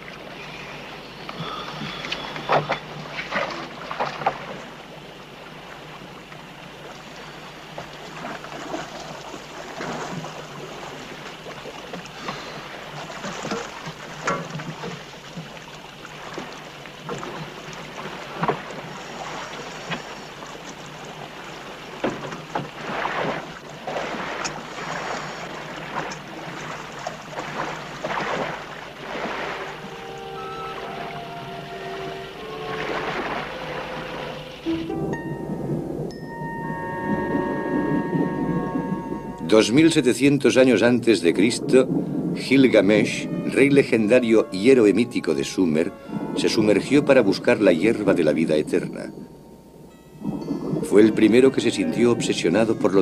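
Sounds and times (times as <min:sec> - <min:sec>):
water sloshing against boat: 0:00.0 - 0:53.0
divers splashing into water: 0:08.0 - 0:34.9.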